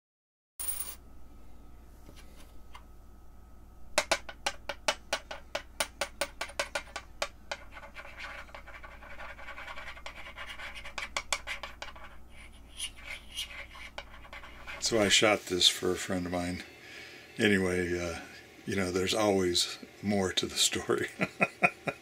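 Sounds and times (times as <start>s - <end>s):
coin scraping on a tabletop: 0.6s - 1.0s, 6.4s - 15.2s.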